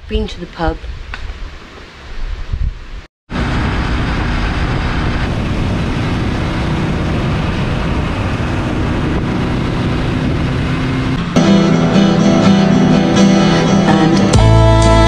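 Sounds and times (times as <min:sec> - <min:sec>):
wind and road noise: 0:00.0 - 0:13.8
motorcycle engine running: 0:03.3 - 0:14.7.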